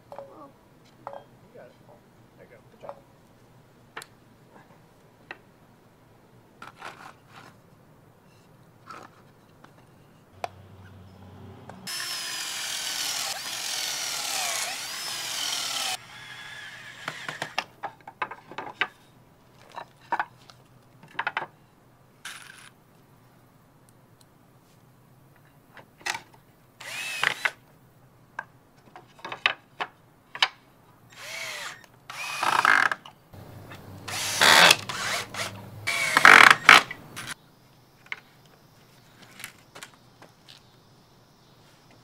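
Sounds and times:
cordless drill whining: 11.9 - 17.6, 26.8 - 27.5, 31.1 - 32.9, 34.1 - 36.8.

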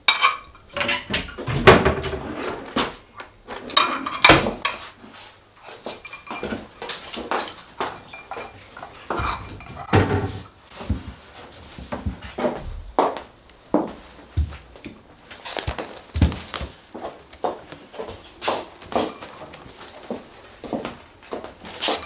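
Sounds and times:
dishes and cutlery clinking: 0.0 - 2.4, 3.5 - 4.9, 5.6 - 10.5, 18.9 - 19.5.

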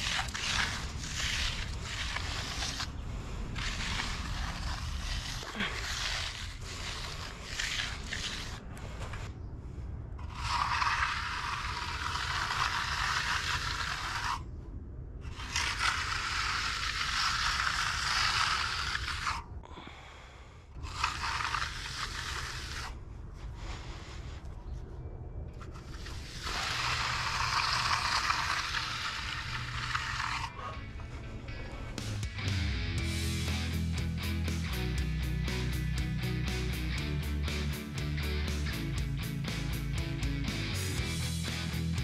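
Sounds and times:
trowel scraping wet concrete: 0.0 - 9.3, 10.2 - 14.5, 15.3 - 19.4, 20.8 - 23.0, 25.6 - 31.2.

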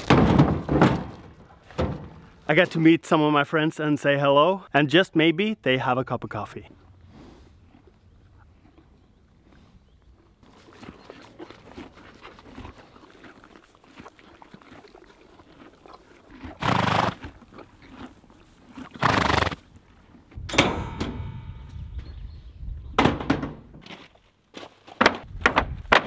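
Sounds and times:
horses munching hay: 6.8 - 20.4
horse snorts: 10.5 - 19.7.

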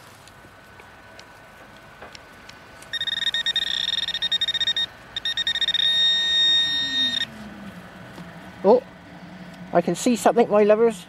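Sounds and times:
metal detector probe beeping: 2.9 - 7.3.

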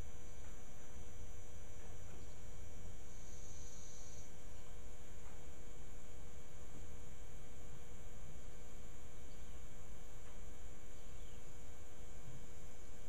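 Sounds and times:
constant hiss: 0.0 - 13.0
electrical hum: 0.0 - 13.0.

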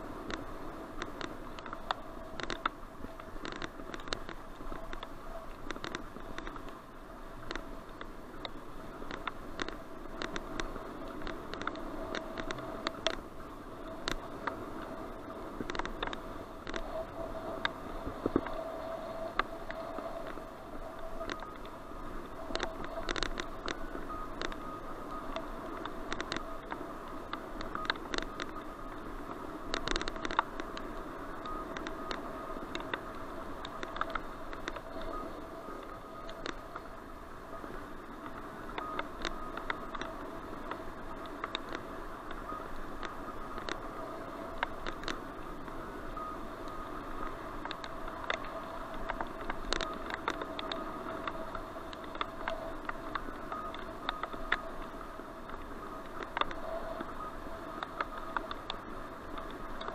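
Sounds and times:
faint steady whine: 0.0 - 59.9
steady hiss: 0.0 - 59.9.

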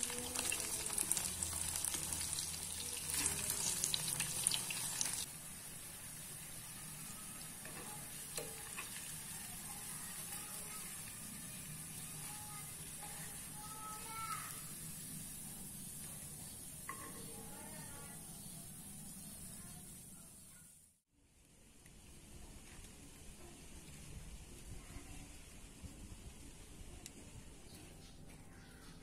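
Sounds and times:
fritters sizzling in hot oil: 0.0 - 21.0.

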